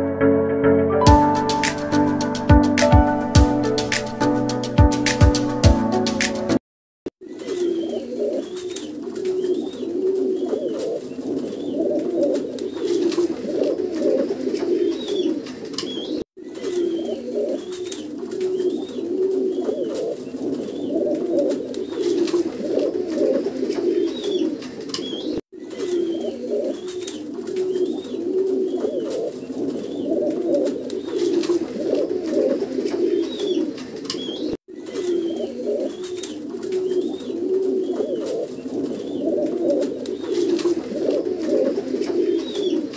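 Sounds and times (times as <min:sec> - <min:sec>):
pigeons cooing: 0:07.3 - 0:42.9.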